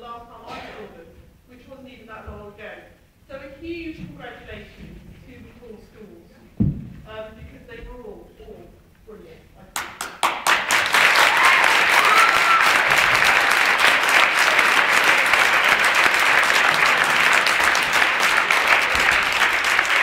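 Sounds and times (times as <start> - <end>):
audience applauding: 9.8 - 20.0.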